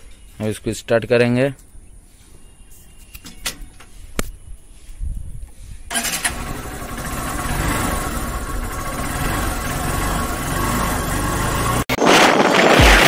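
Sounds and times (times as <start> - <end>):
motorcycle engine cranking and running: 5.9 - 11.8.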